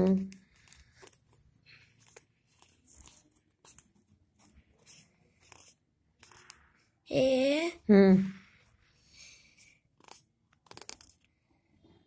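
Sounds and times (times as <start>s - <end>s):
fingertips rustling on glossy paper: 0.3s - 6.8s, 8.5s - 11.3s.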